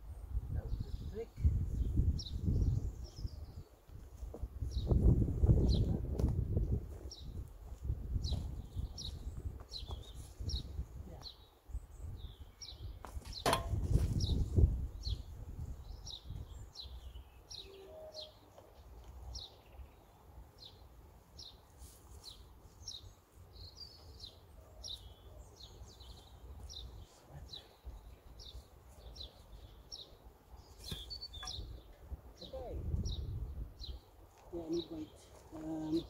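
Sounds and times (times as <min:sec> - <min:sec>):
small bird chirping: 0:14.1 - 0:36.0.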